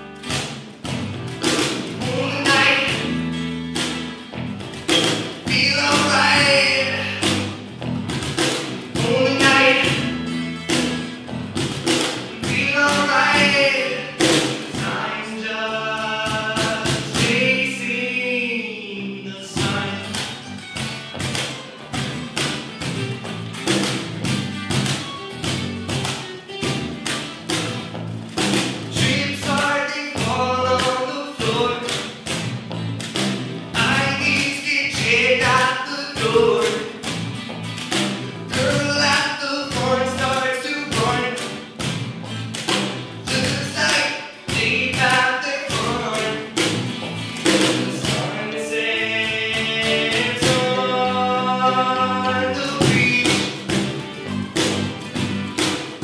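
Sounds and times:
cajon beat: 0.0s - 18.6s, 19.4s - 56.0s
acoustic guitars: 0.0s - 56.0s
electric bass: 0.0s - 56.0s
man singing: 2.0s - 3.2s, 5.4s - 7.4s, 9.0s - 10.3s, 12.4s - 20.4s, 28.9s - 32.2s, 33.8s - 37.0s, 38.5s - 41.6s, 43.2s - 46.6s, 47.6s - 53.7s.

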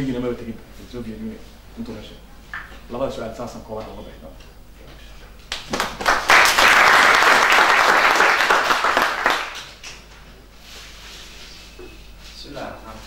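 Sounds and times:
audience applauding: 5.5s - 10.0s.

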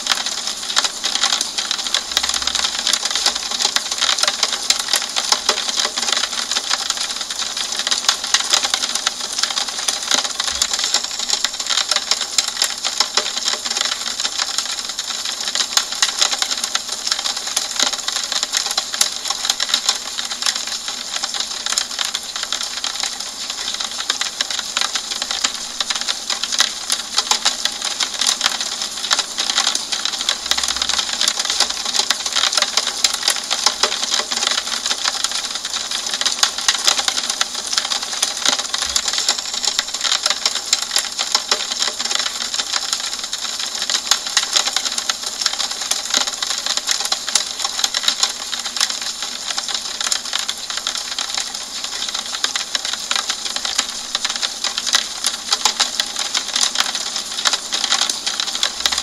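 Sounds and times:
rain tapping on window glass: 0.0s - 59.0s.

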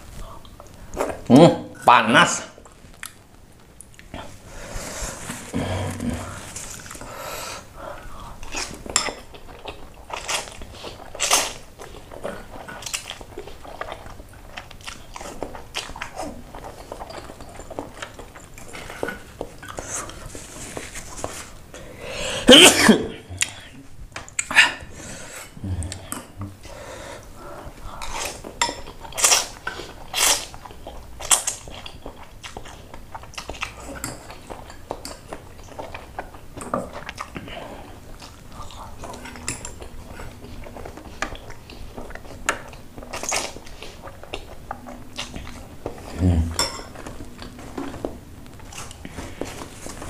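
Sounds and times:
chewing: 5.0s - 7.2s, 7.9s - 21.5s, 27.5s - 50.0s
cutlery clinking on a bowl: 46.6s - 47.2s.

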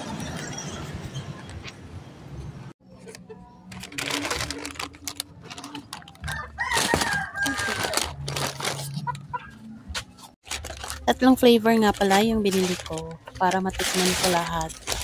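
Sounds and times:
rooster crowing: 6.2s - 8.0s.

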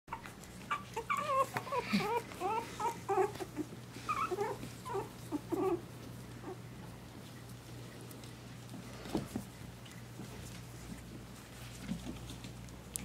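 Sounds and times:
puppies yipping and whining: 0.1s - 7.7s.

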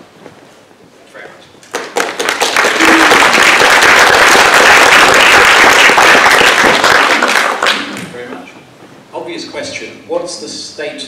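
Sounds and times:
audience applauding: 1.6s - 8.1s.

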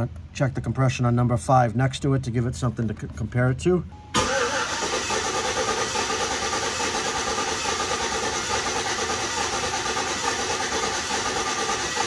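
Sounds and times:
car engine cranking on starter: 4.2s - 12.0s.

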